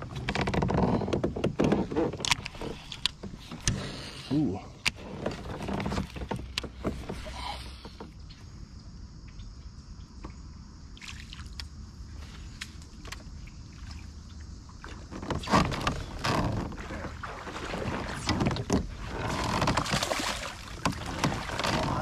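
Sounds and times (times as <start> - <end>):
fish splashing in water: 16.7 - 22.0.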